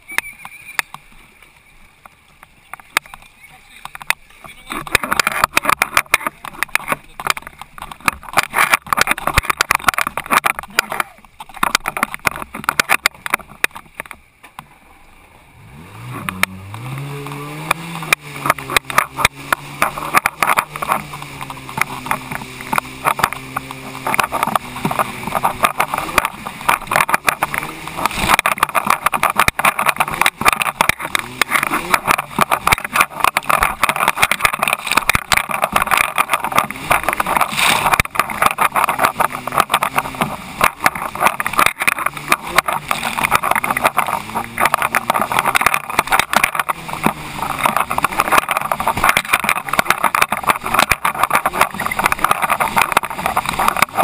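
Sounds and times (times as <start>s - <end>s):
jet ski engine at speed: 0.0s - 54.0s
hull slapping on water: 0.4s - 14.7s, 15.8s - 54.0s
water spray: 15.7s - 54.0s.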